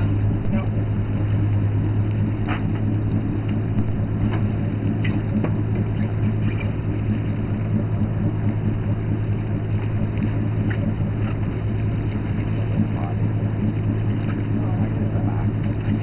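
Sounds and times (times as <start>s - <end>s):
boat engine humming: 0.0s - 16.0s
faint clicks and knocks: 1.5s - 6.8s.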